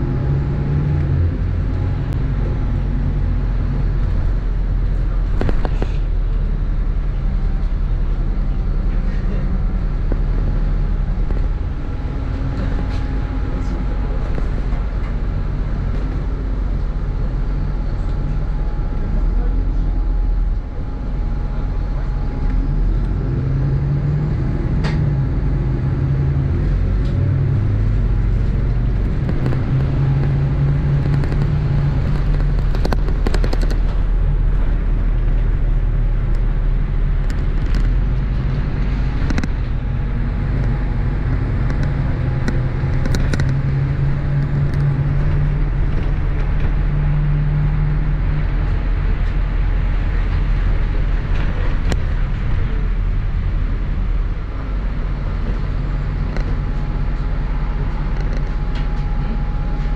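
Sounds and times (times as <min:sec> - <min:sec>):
bus diesel engine drone: 0:00.0 - 0:59.9
sharp clicks and knocks: 0:04.9 - 0:06.0, 0:28.4 - 0:34.7, 0:37.2 - 0:39.7, 0:41.6 - 0:47.0.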